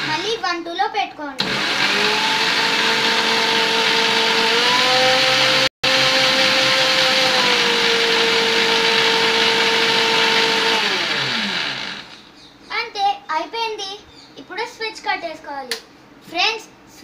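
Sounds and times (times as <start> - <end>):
mixer grinder motor whine: 0.0 - 0.4, 1.4 - 12.3.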